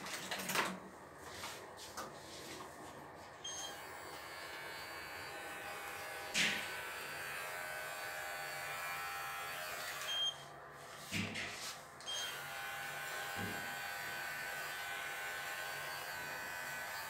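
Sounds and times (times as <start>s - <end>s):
electric clippers buzzing: 3.6s - 10.4s, 12.0s - 17.0s.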